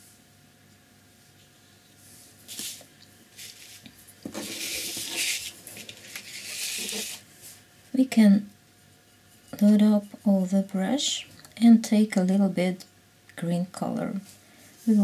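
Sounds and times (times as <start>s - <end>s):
paper sliding on tabletop: 3.4s - 7.6s.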